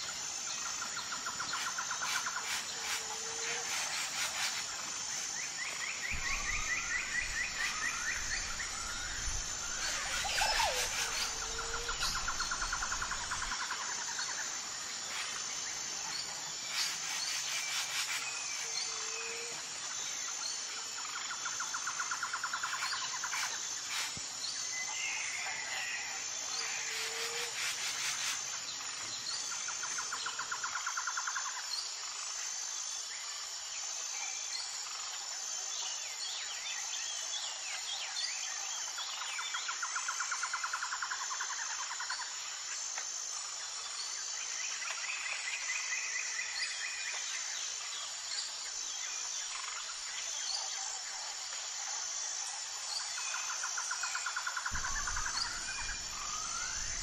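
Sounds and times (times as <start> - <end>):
high insect drone: 0.0 - 57.0
rattling insect trill: 0.0 - 57.0
bird chirps: 6.1 - 13.5, 54.7 - 57.0.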